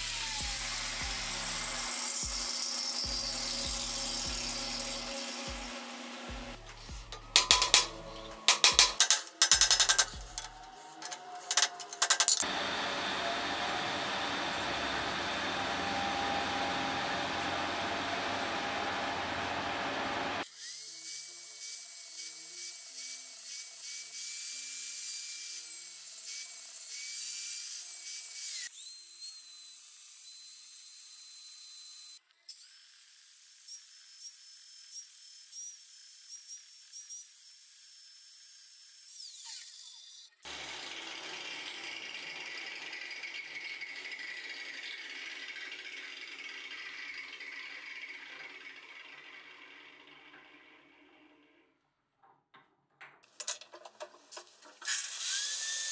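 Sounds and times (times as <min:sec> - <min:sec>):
angle grinder whine: 0:00.0 - 0:20.4, 0:40.5 - 0:51.1
rough grinding noise: 0:00.3 - 0:20.4, 0:40.5 - 0:51.7.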